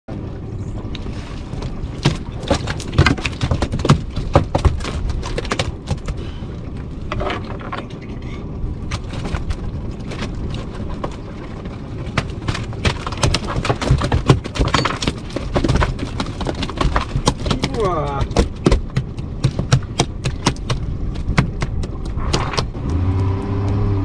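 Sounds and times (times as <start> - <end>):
boat engine low rumble: 0.1 - 24.0
fish slapping on wet deck: 1.2 - 6.2.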